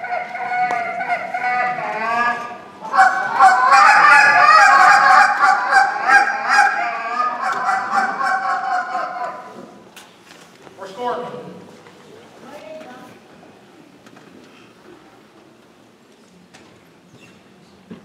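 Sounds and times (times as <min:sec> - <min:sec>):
goose call honks and clucks: 0:00.0 - 0:09.8.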